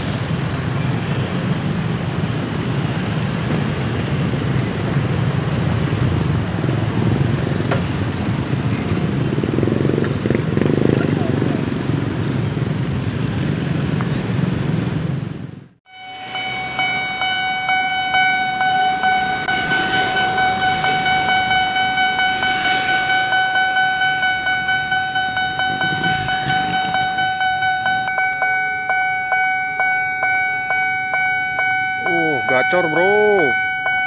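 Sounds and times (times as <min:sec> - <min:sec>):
motorcycles running: 0:00.0 - 0:34.0
level crossing warning bell: 0:15.9 - 0:34.0.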